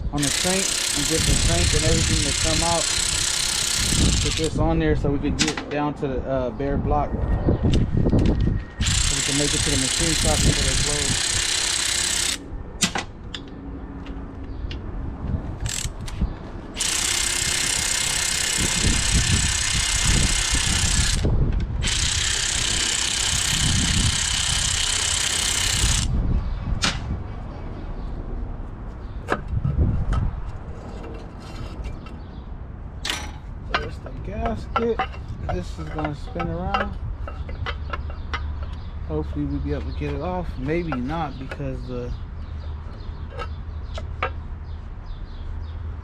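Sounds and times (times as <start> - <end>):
metal parts clicking: 0.2 - 4.6, 8.3 - 12.4, 15.6 - 16.2, 33.0 - 38.8
power ratchet running: 0.2 - 4.6, 8.8 - 12.4, 15.6 - 16.1, 16.8 - 26.1.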